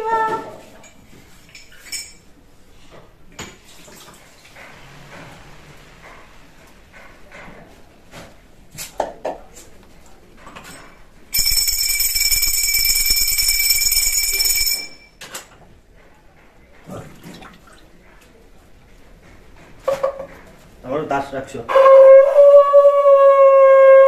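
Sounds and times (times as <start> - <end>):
hand bell ringing: 11.3 - 15.2.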